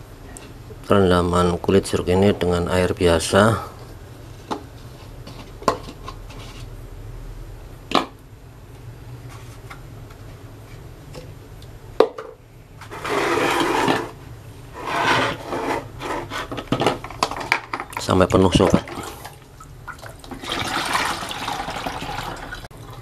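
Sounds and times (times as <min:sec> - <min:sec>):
water pouring into plastic bottle: 0:18.9 - 0:23.0.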